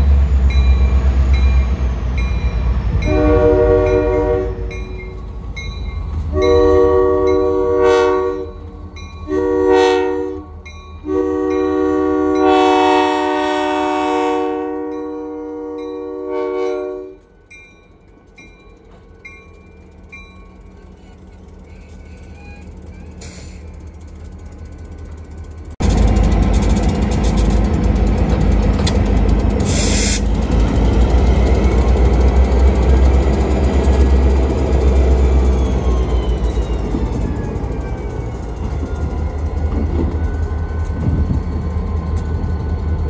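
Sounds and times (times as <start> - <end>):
locomotive engine rumbling: 0.0 - 43.0
locomotive horn: 2.9 - 5.2, 6.3 - 17.3
train wheels clattering: 18.1 - 43.0.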